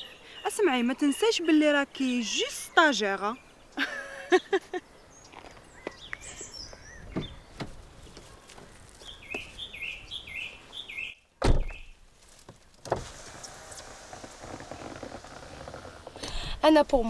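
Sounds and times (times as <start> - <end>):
bird chirping: 0.0 - 12.0
car door shutting: 11.4 - 11.9, 12.8 - 16.2.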